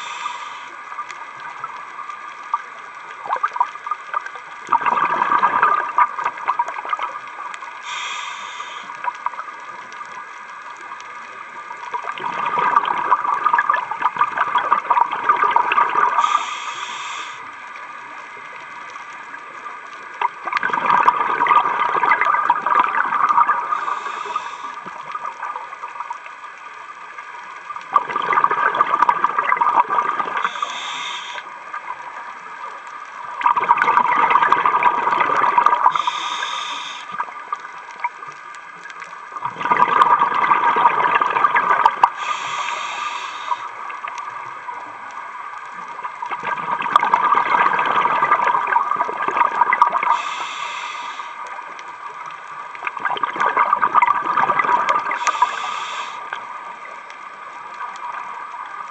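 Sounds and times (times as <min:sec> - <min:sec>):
diver breathing through regulator: 0:00.0 - 0:00.8, 0:07.8 - 0:09.0, 0:16.2 - 0:17.6, 0:23.8 - 0:24.9, 0:30.4 - 0:31.5, 0:35.9 - 0:37.2, 0:42.1 - 0:43.8, 0:50.1 - 0:51.5, 0:55.1 - 0:56.4
short high hiss: 0:00.0 - 0:01.0, 0:07.8 - 0:09.1, 0:16.2 - 0:17.6, 0:23.8 - 0:24.8, 0:30.4 - 0:31.5, 0:35.9 - 0:37.2, 0:42.1 - 0:43.8, 0:50.1 - 0:51.5, 0:55.2 - 0:56.4
exhaled bubbles bursting: 0:04.6 - 0:07.3, 0:12.0 - 0:16.4, 0:20.2 - 0:23.9, 0:27.9 - 0:30.6, 0:33.4 - 0:36.0, 0:39.4 - 0:42.2, 0:46.1 - 0:50.2, 0:52.8 - 0:55.4.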